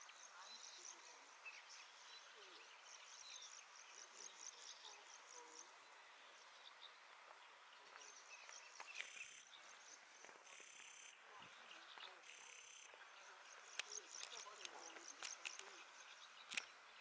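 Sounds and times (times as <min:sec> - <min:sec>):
faint clicks: 0:13.7 - 0:16.7.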